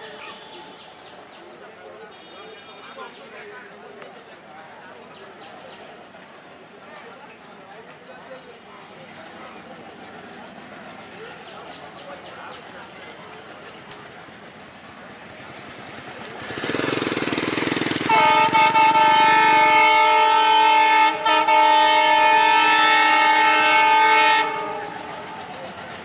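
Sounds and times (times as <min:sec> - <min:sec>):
train rushing noise: 0:04.2 - 0:26.0
train air horn blast: 0:18.0 - 0:25.4.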